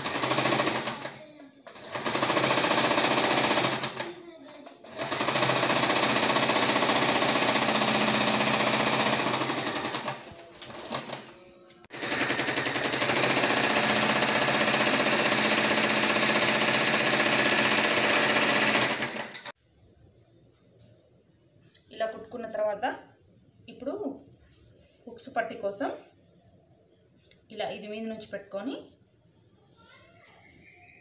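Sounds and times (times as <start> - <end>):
electric sewing machine stitching: 0.0 - 1.2, 1.8 - 4.1, 4.8 - 11.3, 11.9 - 19.6.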